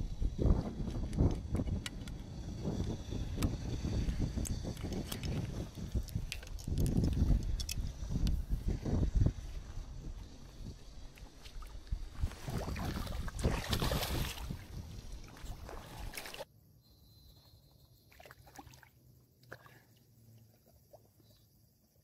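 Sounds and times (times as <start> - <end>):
water splashing and sloshing: 11.0 - 16.5, 18.1 - 21.3.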